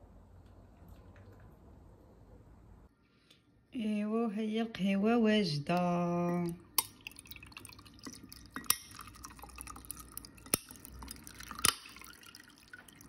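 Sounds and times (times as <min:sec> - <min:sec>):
coffee trickling into glass: 0:06.3 - 0:13.0.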